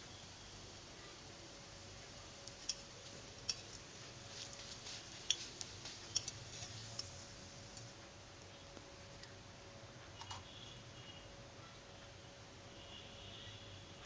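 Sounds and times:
hot oil crackling and spitting: 0:00.1 - 0:10.8.

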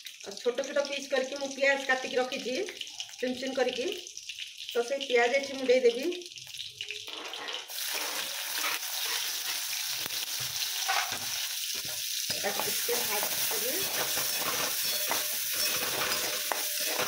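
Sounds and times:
onions sizzling in hot oil: 0:00.0 - 0:17.0
metal spatula scraping pan: 0:07.1 - 0:17.0.

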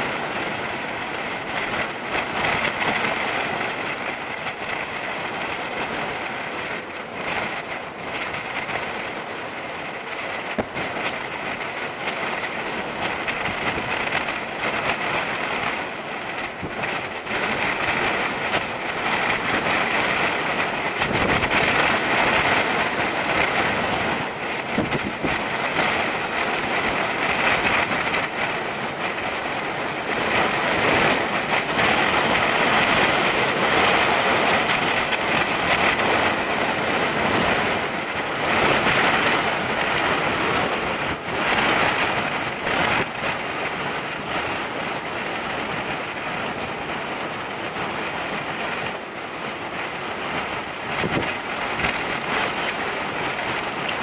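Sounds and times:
gusty wind buffeting microphone: 0:00.0 - 0:54.0.

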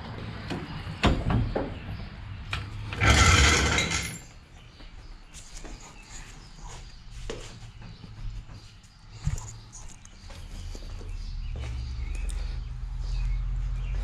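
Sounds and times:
floor jack clinks and knocks: 0:02.9 - 0:04.3.

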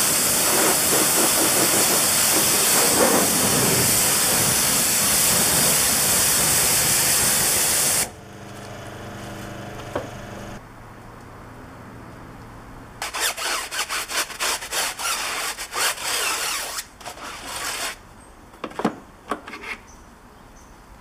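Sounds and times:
brush scrubbing a wheel: 0:00.0 - 0:07.6, 0:13.0 - 0:18.0.

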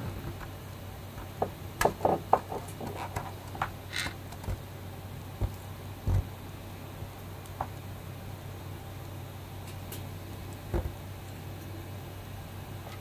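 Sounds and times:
faint steady low hum: 0:00.0 - 0:13.0
soft low thumps: 0:05.4 - 0:06.4.

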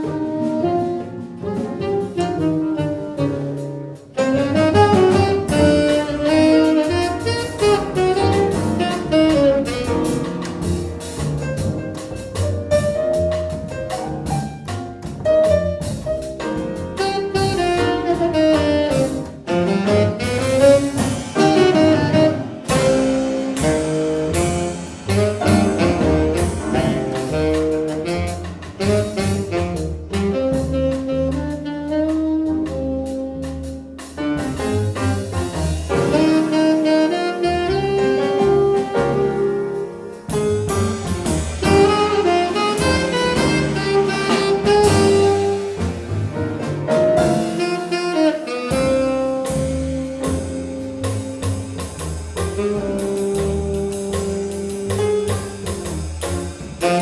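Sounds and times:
saxophone melody: 0:00.0 - 0:10.2, 0:17.0 - 0:34.0, 0:36.0 - 0:40.2, 0:41.4 - 0:46.1, 0:47.2 - 0:51.8, 0:52.5 - 0:55.4, 0:56.8 - 0:57.0
drum kit with cymbals: 0:00.0 - 0:57.0
piano: 0:00.0 - 0:57.0
upright double bass: 0:00.0 - 0:57.0.

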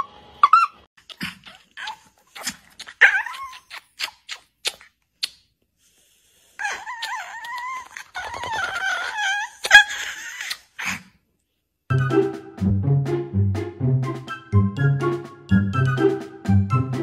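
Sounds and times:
dog yipping and whining: 0:00.0 - 0:04.0, 0:06.6 - 0:11.0.

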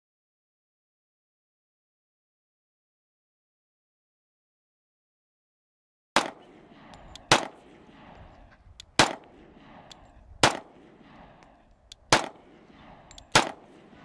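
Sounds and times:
pistol shots: 0:06.2 - 0:14.0.

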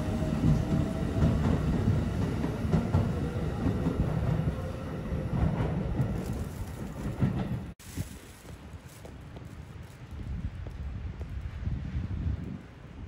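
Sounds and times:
electric train rumbling past: 0:00.0 - 0:07.8.

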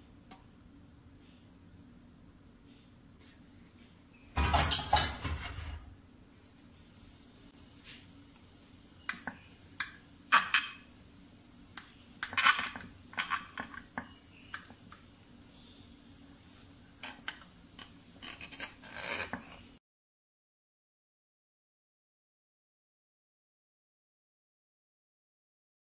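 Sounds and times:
knife scraping glass dish: 0:18.2 - 0:19.6.

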